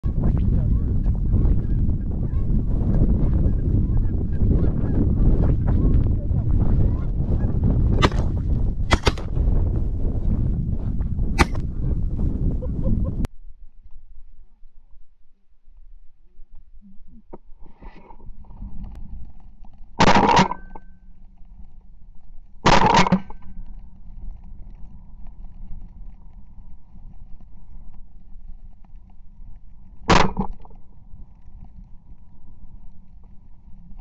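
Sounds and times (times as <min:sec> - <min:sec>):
shotgun shots with echo: 0:08.0 - 0:08.3, 0:08.9 - 0:09.3, 0:11.4 - 0:11.6.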